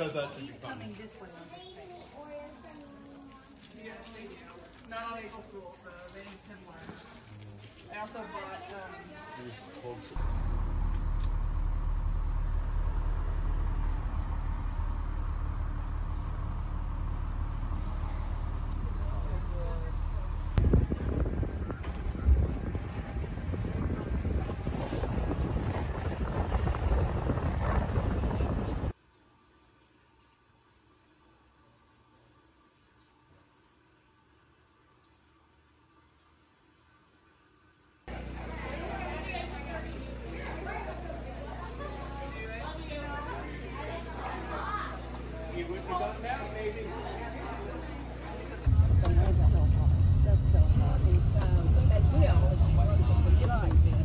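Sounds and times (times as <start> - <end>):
vehicle running rumble: 9.8 - 29.0, 38.1 - 54.0.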